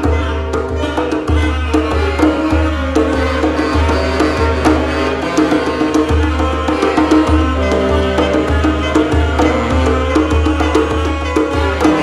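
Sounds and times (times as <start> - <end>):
saxophones holding notes: 3.2 - 12.0
hand percussion tapping: 5.4 - 12.0
bass line: 7.4 - 10.9.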